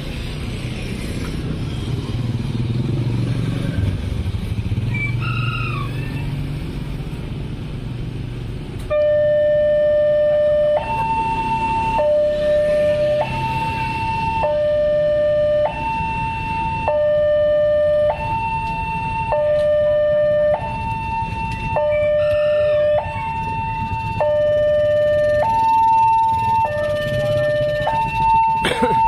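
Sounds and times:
low rumble of traffic: 0.0 - 29.0
two-tone crossing alarm: 8.9 - 29.0.

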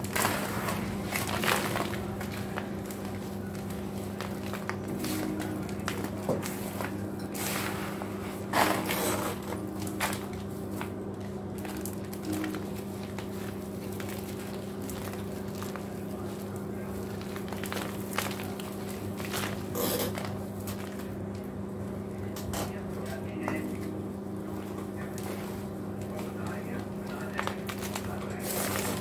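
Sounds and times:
cement chunks crunching in bowl: 0.0 - 7.9.

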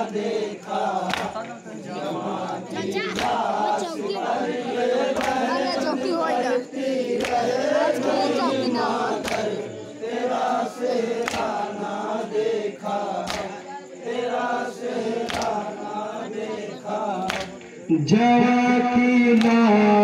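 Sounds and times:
men singing lament in chorus: 0.0 - 20.0
sharp unison slaps: 1.1 - 1.6, 11.2 - 11.6, 13.2 - 13.5, 15.2 - 15.6, 17.3 - 17.8, 19.4 - 19.6.

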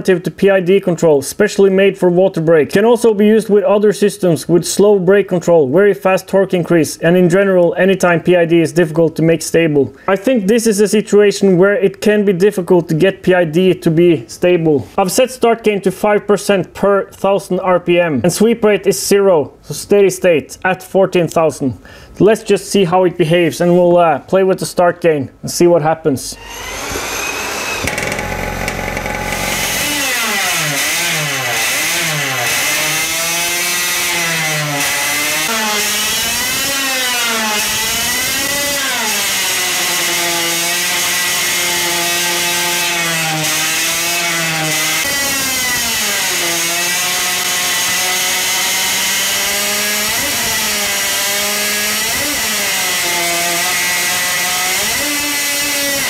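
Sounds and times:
high-revving two-stroke engine: 26.6 - 40.0, 40.6 - 56.0.

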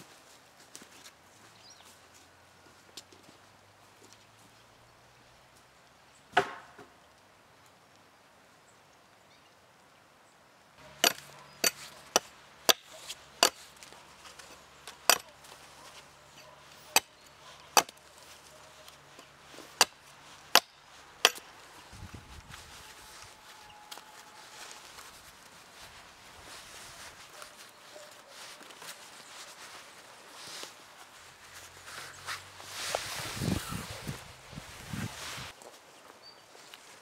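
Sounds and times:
blade chopping green wood: 10.9 - 13.6, 17.7 - 18.0, 19.7 - 21.4.

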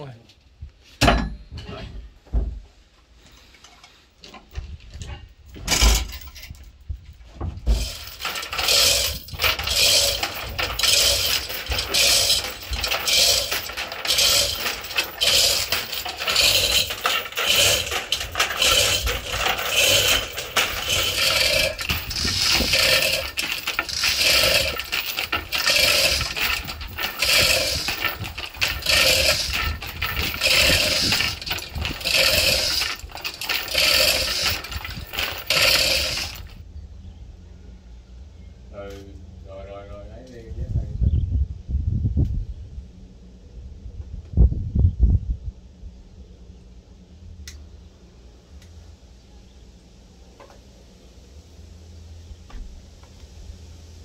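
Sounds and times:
sharp metal knocks: 1.0 - 1.6
metallic clinking and scraping: 7.6 - 36.6.

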